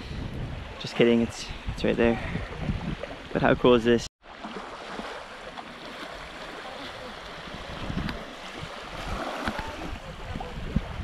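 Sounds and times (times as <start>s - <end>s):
wind gusting on microphone: 0.0s - 4.0s, 6.2s - 11.0s
small waves washing on shore: 4.2s - 11.0s.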